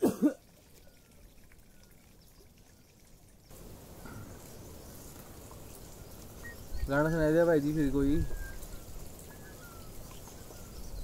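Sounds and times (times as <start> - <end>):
small stream trickling: 0.0 - 11.0
hiss of running water: 2.7 - 11.0.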